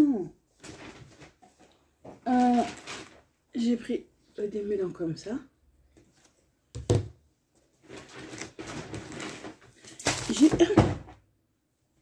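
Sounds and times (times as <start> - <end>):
plastic packaging rustling: 0.5 - 3.8, 7.8 - 10.8.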